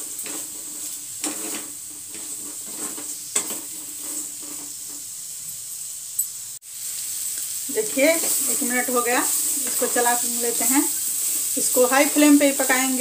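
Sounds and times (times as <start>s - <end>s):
spatula scraping a pan: 0.0s - 5.4s, 8.0s - 13.0s
vegetables sizzling in oil: 0.0s - 13.0s.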